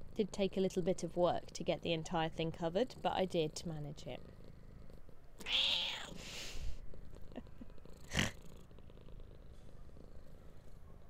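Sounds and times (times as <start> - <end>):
cat purring: 0.0 - 11.0.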